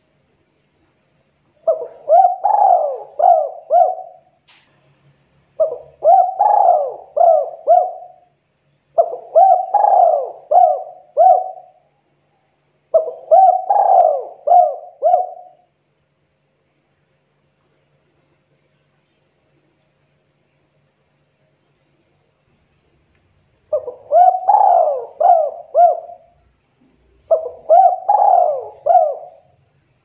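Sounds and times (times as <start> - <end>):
dove cooing: 1.6 - 4.4, 5.6 - 8.3, 9.0 - 11.8, 12.9 - 15.7, 23.7 - 29.7.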